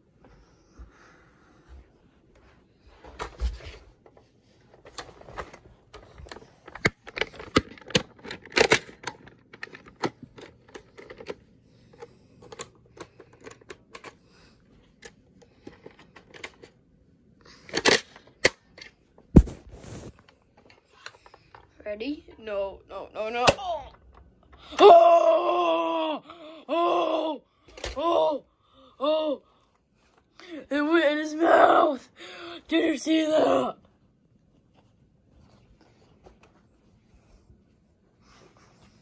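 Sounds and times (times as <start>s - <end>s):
plastic toy blaster clicks and rattles: 4.9s - 11.4s, 17.6s - 18.9s.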